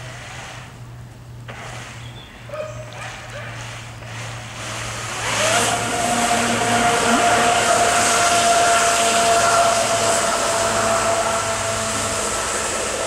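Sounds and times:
rushing water spray: 0.0 - 0.8, 1.4 - 2.1, 3.0 - 13.0
jet drive whine: 3.8 - 13.0.

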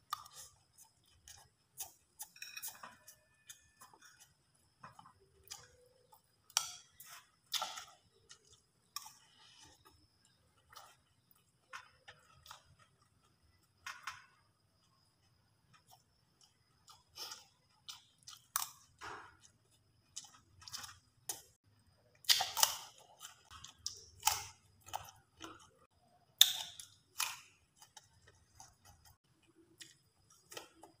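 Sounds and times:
chewing and smacking: 0.0 - 31.0.

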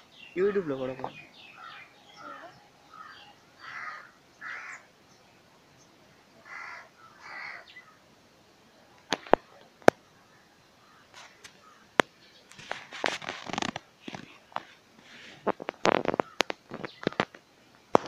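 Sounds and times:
crow cawing: 1.5 - 4.9, 6.4 - 8.0, 16.0 - 16.5
crackling clicks: 9.0 - 10.0, 11.1 - 14.8, 15.4 - 18.0.

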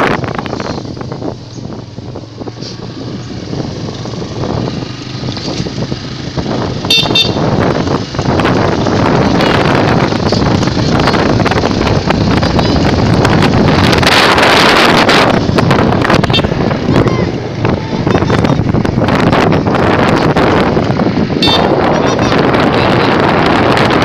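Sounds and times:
vehicle travel noise: 0.0 - 24.0
wind on microphone: 0.0 - 24.0
high-pitched toot: 21.4 - 21.7.

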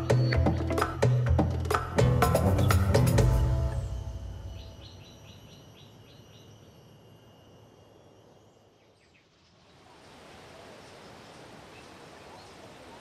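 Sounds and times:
background music: 0.0 - 5.4
small bird chirping: 4.4 - 9.5.

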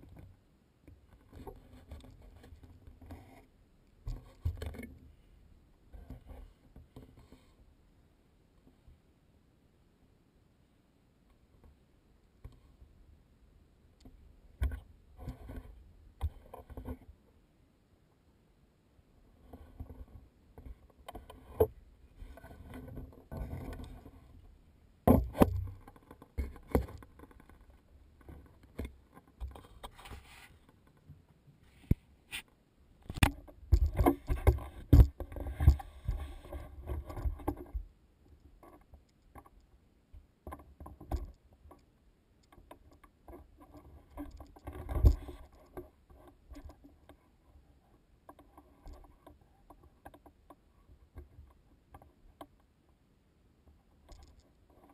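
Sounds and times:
camera mount rubbing and bumping: 21.1 - 24.3, 31.8 - 37.8.

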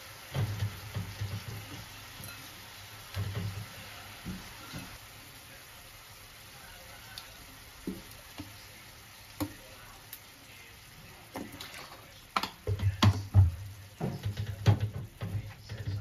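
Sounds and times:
food sizzling in a pan: 0.0 - 16.0
knocks and clatters: 0.3 - 1.9, 3.1 - 4.4, 11.4 - 16.0.

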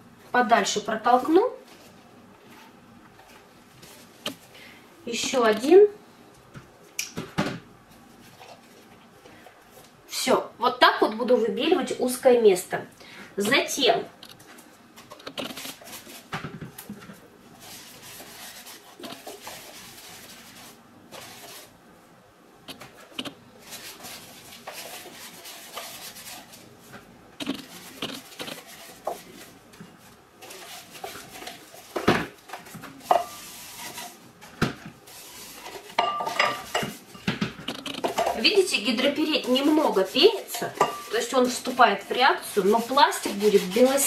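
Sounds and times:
wet sponge rubbing plastic: 15.3 - 16.3, 17.6 - 21.7, 23.6 - 26.8, 27.4 - 32.0, 37.8 - 44.0.

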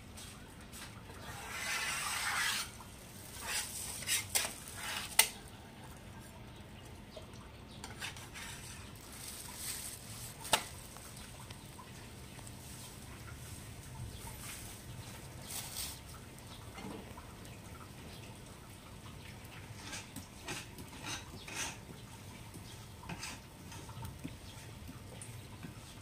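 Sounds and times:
metal spatula scraping griddle: 1.2 - 5.3, 7.8 - 8.9, 19.8 - 21.8, 23.1 - 23.8.

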